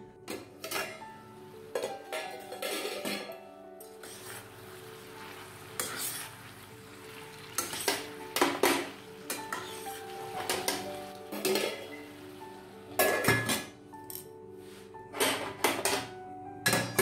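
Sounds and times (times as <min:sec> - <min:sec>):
vegetables sizzling: 0:03.9 - 0:13.0
metal spoon scraping steel pan: 0:04.0 - 0:04.5, 0:05.8 - 0:06.4.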